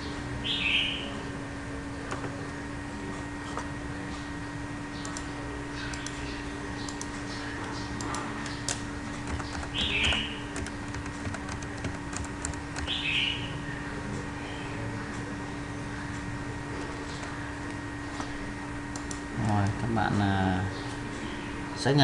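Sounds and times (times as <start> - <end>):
faint steady hum: 0.0 - 22.0
keyboard key clicks: 6.8 - 12.9.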